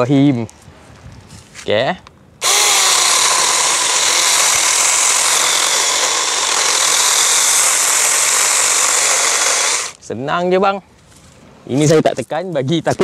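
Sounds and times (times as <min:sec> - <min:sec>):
chainsaw cutting wood: 0:02.4 - 0:10.0.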